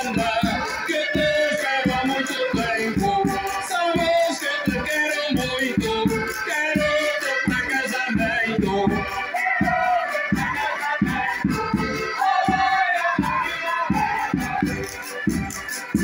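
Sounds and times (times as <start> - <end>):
folk dance melody: 0.0 - 16.0.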